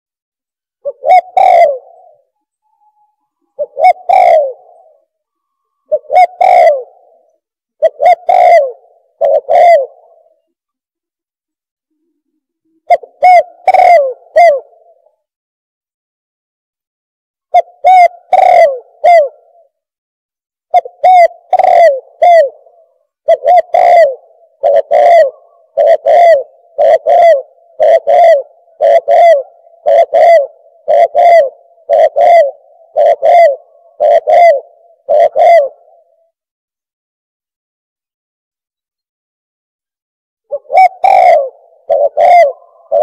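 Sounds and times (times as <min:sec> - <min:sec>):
dove cooing: 0:00.8 - 0:10.6, 0:12.7 - 0:15.2, 0:17.5 - 0:19.8, 0:20.7 - 0:36.4, 0:40.5 - 0:43.0.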